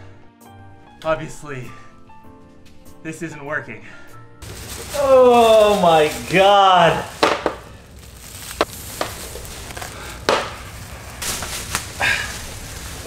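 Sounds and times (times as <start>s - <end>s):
plastic wrap crinkling: 4.4s - 13.0s.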